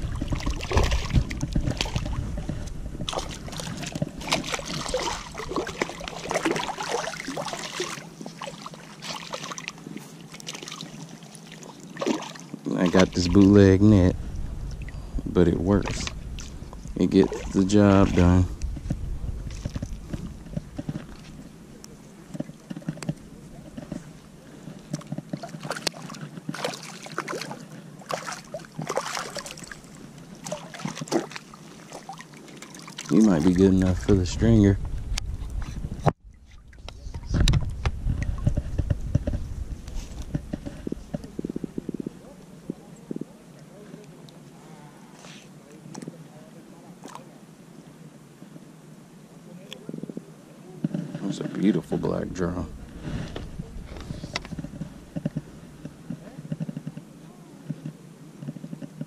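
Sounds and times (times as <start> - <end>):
fish splashing and thrashing in water: 0.0 - 13.5, 24.5 - 34.1.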